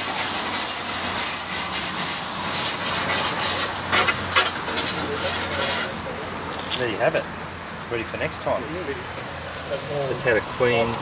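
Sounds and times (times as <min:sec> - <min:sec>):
grill brush scrubbing: 0:00.0 - 0:06.1
water sizzling on hot metal: 0:00.0 - 0:08.3, 0:09.2 - 0:11.0.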